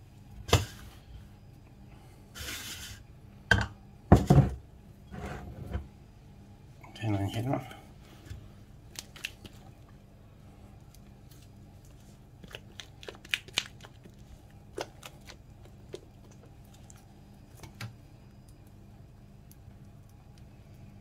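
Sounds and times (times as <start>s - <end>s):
steady low hum: 0.0s - 21.0s
batter scraped from bowl: 2.4s - 3.0s.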